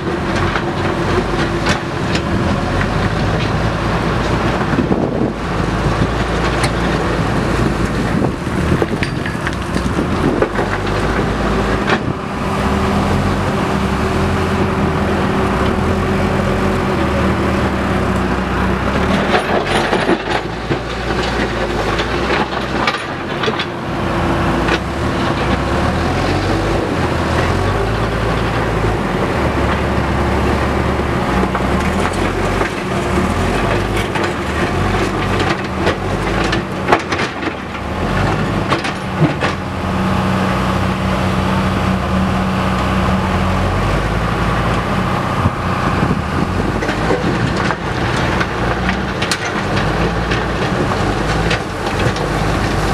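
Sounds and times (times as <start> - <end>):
diesel engine under load: 0.0 - 52.9
knocks and clanks: 19.0 - 23.8.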